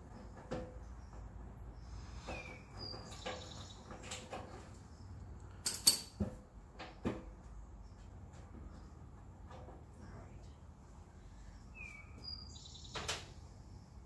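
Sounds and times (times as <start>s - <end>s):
wrench clanking on concrete: 5.5s - 6.4s
metal hand tools clinking: 5.6s - 6.2s.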